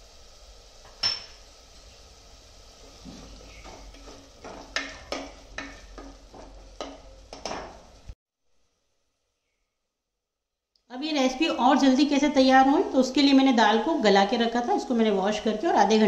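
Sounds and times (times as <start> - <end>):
spatula scraping metal pot: 2.9 - 7.7.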